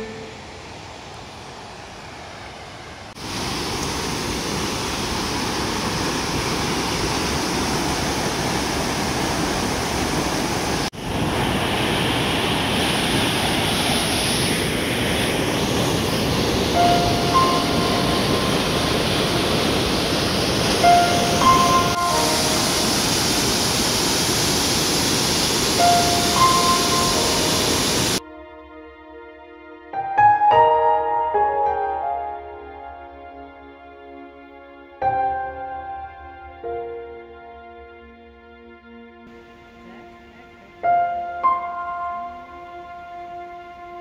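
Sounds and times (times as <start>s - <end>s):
faint high-pitched notes: 0.0s - 1.1s, 16.7s - 19.6s, 20.8s - 23.3s, 25.8s - 29.7s
stream rushing over rapids: 0.0s - 28.2s.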